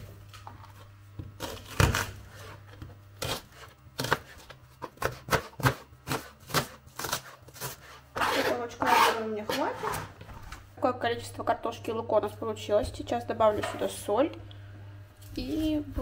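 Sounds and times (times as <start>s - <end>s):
knife chopping on plastic board: 3.2s - 7.8s.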